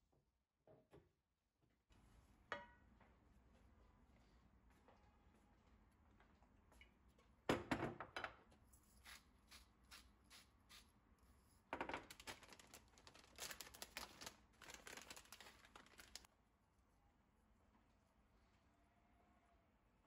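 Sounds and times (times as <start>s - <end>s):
objects knocking on countertop: 7.5s - 8.4s
plastic bag crinkling: 12.0s - 16.3s.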